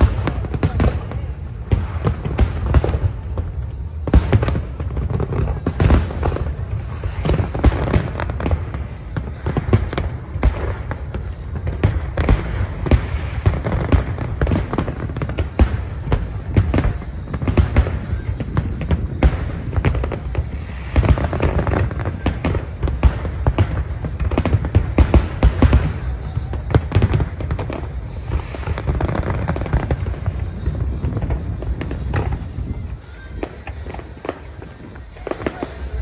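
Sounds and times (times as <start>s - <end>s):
fireworks bangs and booms: 0.0s - 36.0s.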